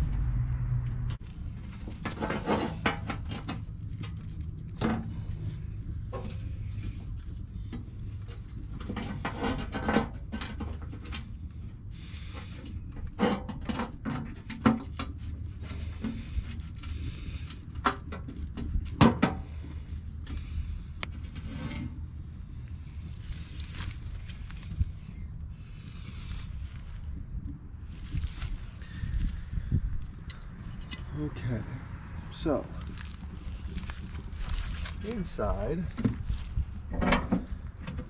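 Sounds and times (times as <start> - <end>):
metal clicking and knocking: 36.9 - 38.0.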